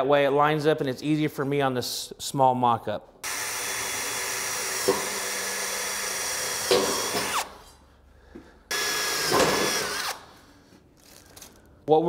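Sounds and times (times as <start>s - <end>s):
cordless drill whining: 3.2s - 7.7s, 8.7s - 10.3s.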